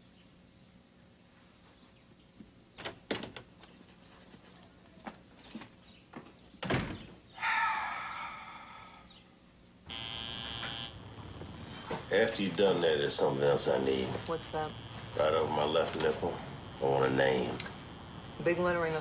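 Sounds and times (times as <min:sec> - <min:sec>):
wooden door shutting with thud: 0:06.6 - 0:07.1
tattoo machine buzzing: 0:09.9 - 0:19.0.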